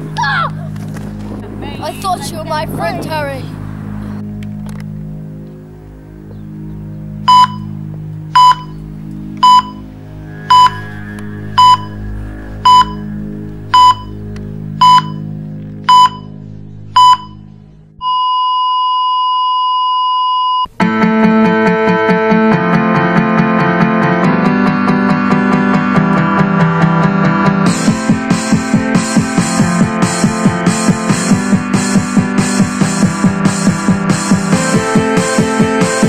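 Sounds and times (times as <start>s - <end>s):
low musical drone: 0.0s - 18.1s
electronic beeps: 7.3s - 8.8s, 9.4s - 20.7s
unbroken flatline tone: 7.3s - 20.7s.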